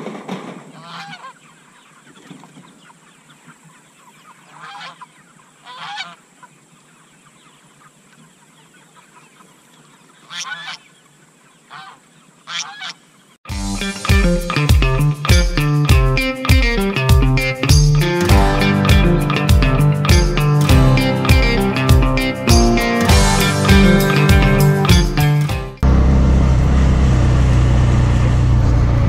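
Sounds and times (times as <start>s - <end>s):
geese honking: 0.7s - 13.1s
guitar music: 13.5s - 26.7s.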